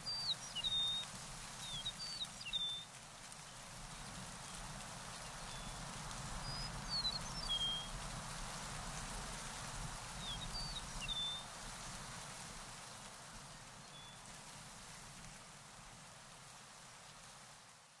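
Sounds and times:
small bird singing: 0.0 - 1.0.

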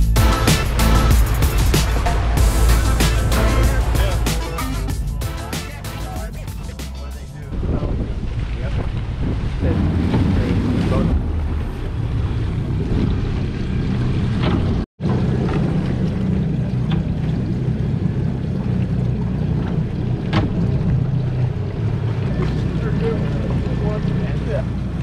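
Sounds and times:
boat engines idling: 0.0 - 25.0
water sloshing around hull: 7.4 - 25.0.

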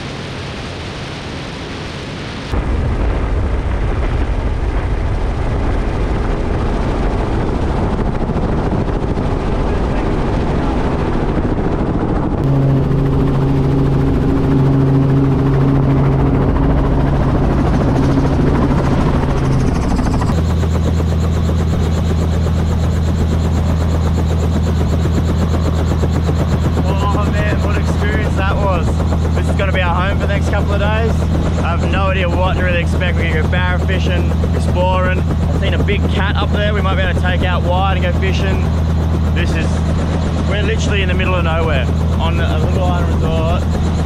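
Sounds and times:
wind rushing: 0.0 - 21.0
helicopter engine and rotor: 0.0 - 44.0.

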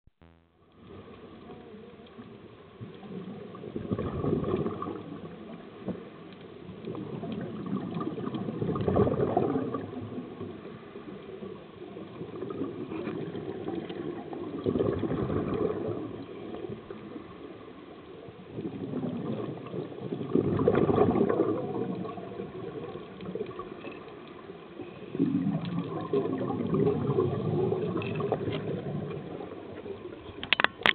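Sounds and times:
air bubbling underwater: 3.7 - 5.2, 7.1 - 10.2, 12.4 - 16.2, 18.6 - 22.8, 25.2 - 29.4.

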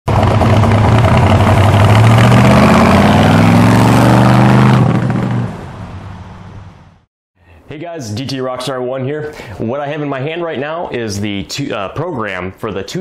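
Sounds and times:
car engine accelerating hard: 0.1 - 7.0.

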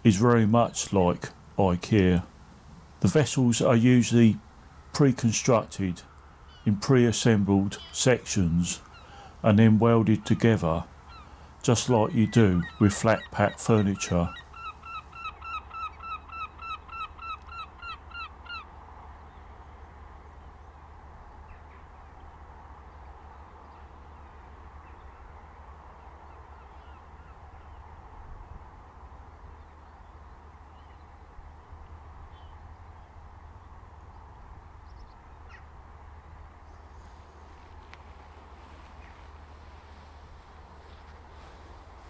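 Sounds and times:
background hiss and rumble: 0.0 - 42.0
bird calling rapidly: 6.1 - 6.8, 7.7 - 9.5, 10.2 - 18.7.

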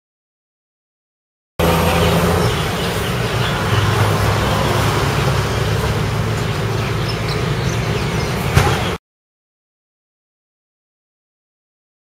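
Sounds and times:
low traffic hum: 1.6 - 9.0
vehicles passing with a hiss: 1.6 - 9.0.

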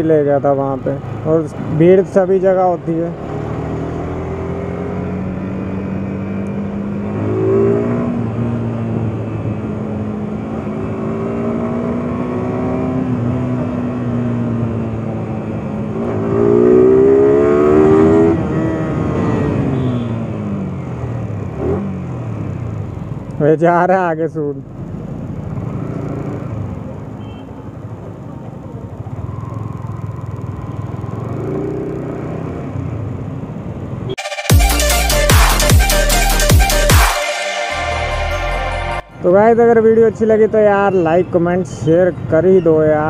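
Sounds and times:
road and wind noise: 0.0 - 34.2, 39.0 - 43.0
motorcycle engine accelerating: 3.2 - 23.0.

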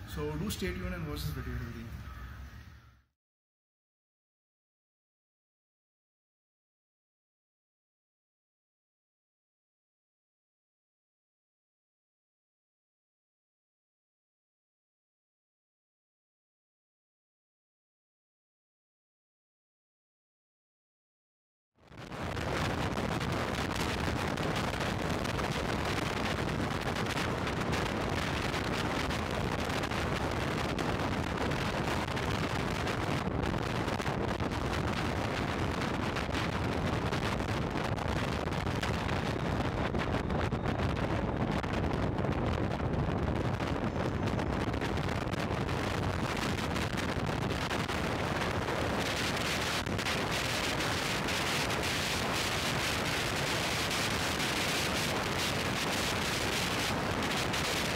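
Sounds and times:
wind rush on camera microphone: 21.8 - 57.9.

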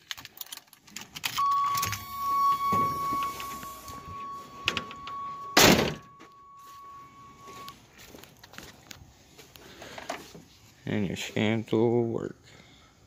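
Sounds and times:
car warning tone: 1.4 - 7.9
car door slamming: 5.5 - 6.2.

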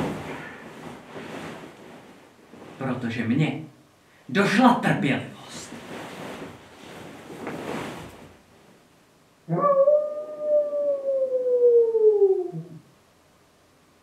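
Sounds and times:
soft rustling: 0.0 - 3.3, 5.4 - 9.1
wolf-like howl: 9.5 - 12.8.

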